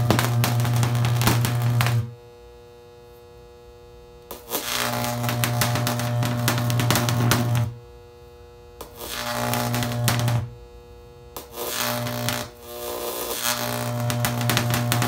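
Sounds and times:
electric arc buzzing and crackling: 0:00.0 - 0:15.0.

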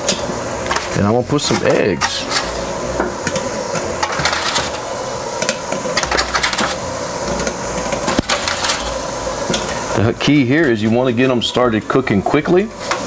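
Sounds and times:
steaming water hissing: 0:04.7 - 0:13.0.

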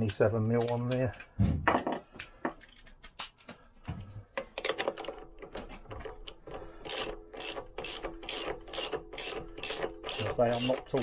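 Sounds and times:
ratchet wrench clicking: 0:06.9 - 0:11.0.

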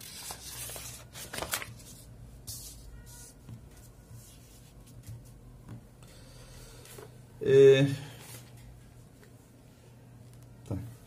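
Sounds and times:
paper rustling and crinkling: 0:00.0 - 0:05.3.

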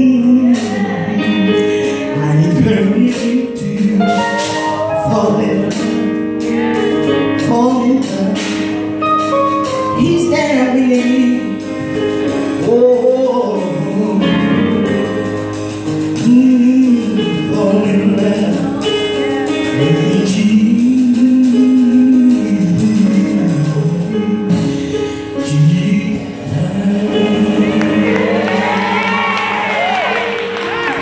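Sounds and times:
woman singing gospel: 0:00.0 - 0:08.7, 0:09.9 - 0:11.6, 0:12.6 - 0:14.6, 0:16.2 - 0:24.6
instrumental backing music: 0:00.0 - 0:31.0.

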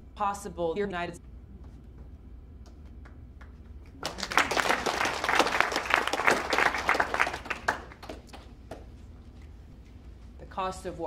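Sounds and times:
audience applauding: 0:03.0 - 0:08.5.

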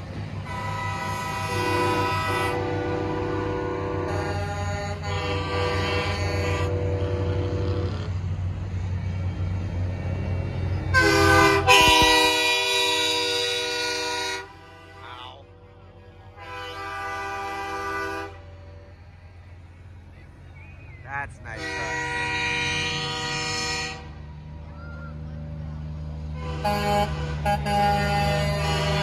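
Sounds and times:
diesel truck engines rumbling: 0:00.0 - 0:29.0
truck air horn blasts: 0:00.4 - 0:08.2, 0:10.9 - 0:19.0, 0:21.5 - 0:24.3, 0:25.9 - 0:29.0.

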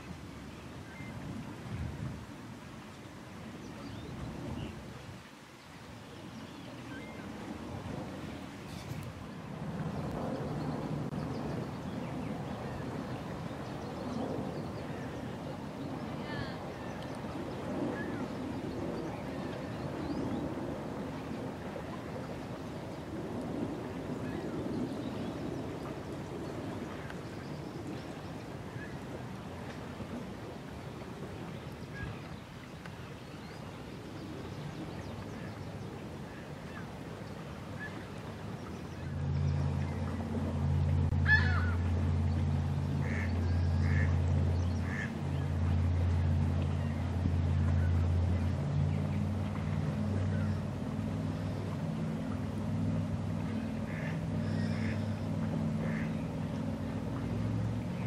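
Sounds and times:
water at lakeshore: 0:00.0 - 0:58.0
wind: 0:00.0 - 0:58.0
faint bird calls: 0:41.1 - 0:42.0, 0:42.9 - 0:45.5, 0:49.6 - 0:50.7, 0:53.4 - 0:56.3.

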